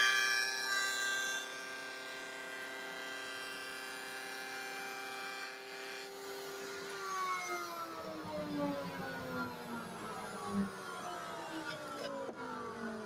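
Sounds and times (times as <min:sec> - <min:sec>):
router motor whining: 0:05.5 - 0:13.0.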